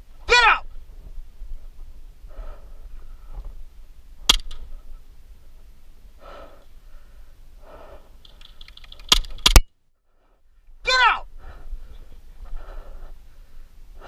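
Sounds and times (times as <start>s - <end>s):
faint breathing: 2.2s - 3.6s, 4.7s - 9.1s, 10.0s - 14.0s
sharp crack: 4.2s - 4.7s, 8.2s - 9.7s.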